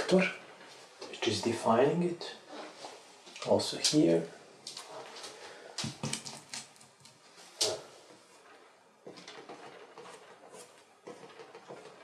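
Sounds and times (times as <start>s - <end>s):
painting tools knocking and scraping: 5.8s - 12.0s
brushing paint on canvas: 7.2s - 12.0s.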